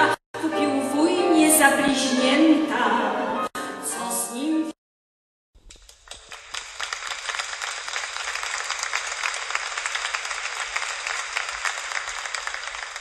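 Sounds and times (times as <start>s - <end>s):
audience applause: 5.7s - 13.0s.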